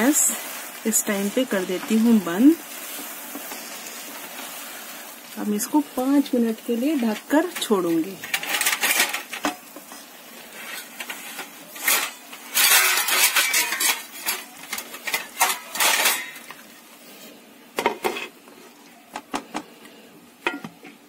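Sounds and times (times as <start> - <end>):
spatula scraping a pan: 0.1 - 5.3, 6.8 - 16.6.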